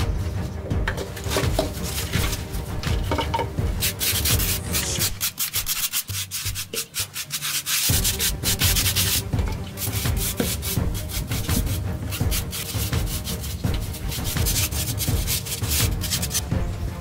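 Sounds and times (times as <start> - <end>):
brush scrubbing paint on wall: 0.1 - 16.5.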